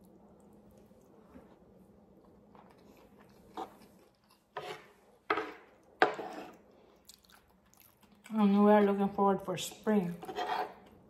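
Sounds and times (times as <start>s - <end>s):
soft chewing: 0.0s - 5.0s, 5.7s - 8.9s.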